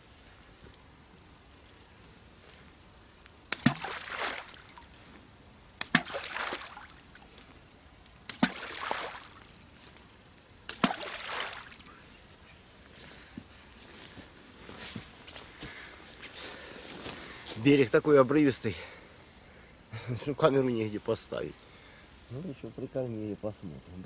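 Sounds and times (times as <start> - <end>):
balls plopping into water: 3.5 - 4.9, 5.8 - 7.0, 8.3 - 9.6, 10.7 - 11.9.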